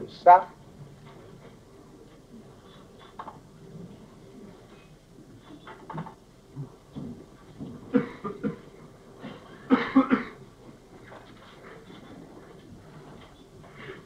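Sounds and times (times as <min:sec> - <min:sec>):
person coughing: 0:07.9 - 0:10.4.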